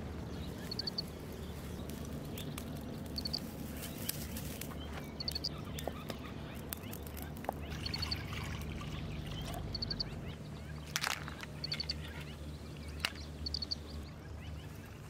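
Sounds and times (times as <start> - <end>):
small bird chirping: 0.2 - 15.0
straw and twigs crackling in fire: 0.4 - 8.0, 10.8 - 11.6.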